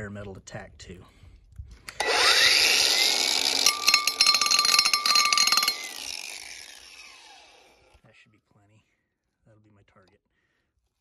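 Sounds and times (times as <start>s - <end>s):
angle grinder whining: 1.9s - 7.8s
abrasive disc grinding on metal: 2.0s - 7.4s.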